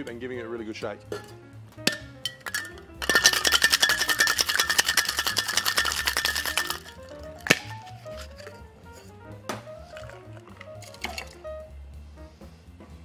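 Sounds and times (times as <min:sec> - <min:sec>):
knock on metal tin: 0:01.9 - 0:06.4
ice rattling in cocktail shaker: 0:01.9 - 0:08.7, 0:09.8 - 0:11.4.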